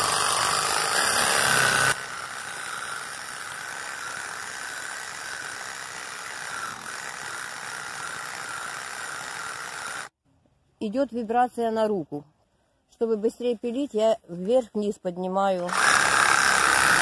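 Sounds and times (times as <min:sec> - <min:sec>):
reciprocating saw cutting log: 0:00.0 - 0:10.1, 0:15.6 - 0:17.0.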